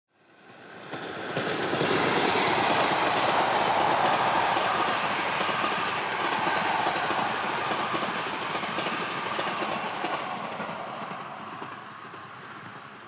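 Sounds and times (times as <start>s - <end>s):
train wheels rumbling: 0.4s - 13.0s.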